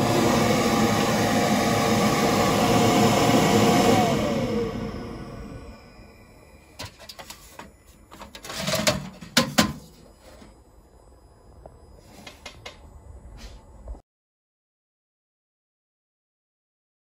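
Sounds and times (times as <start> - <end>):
knocking and scraping on metal: 6.8 - 10.5.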